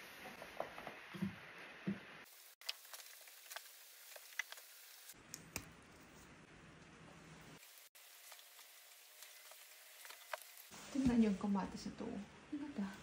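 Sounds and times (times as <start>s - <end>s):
plants rustling: 7.5s - 11.8s.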